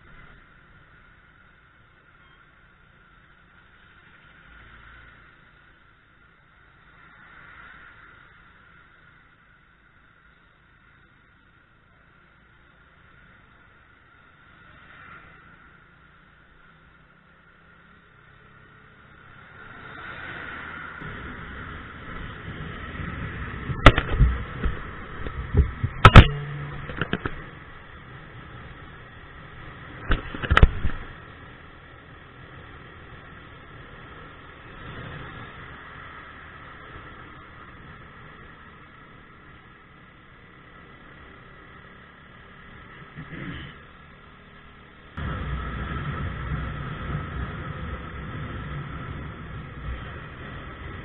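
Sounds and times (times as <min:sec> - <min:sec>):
wind: 0:00.0 - 0:51.0
scooter engine riding: 0:20.5 - 0:51.0
knocks and bumps on camera: 0:23.7 - 0:27.4, 0:30.0 - 0:31.1.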